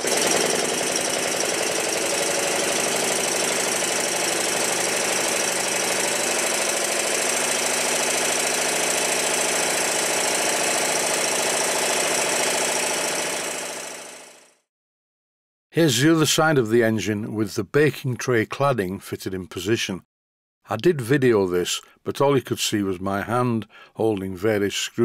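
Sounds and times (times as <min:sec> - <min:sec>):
model steam engine clattering: 0:00.0 - 0:12.8.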